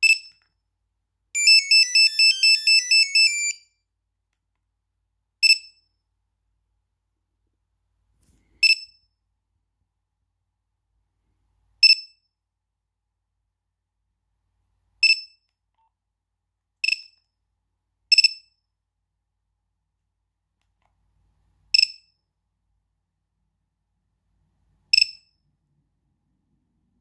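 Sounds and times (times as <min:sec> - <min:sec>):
short high electronic tones: 0:01.4 - 0:03.6.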